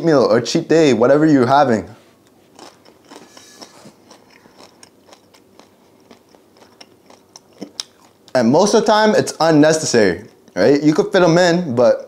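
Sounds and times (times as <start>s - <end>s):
man chewing crunchy food: 2.2s - 8.4s, 9.8s - 10.7s.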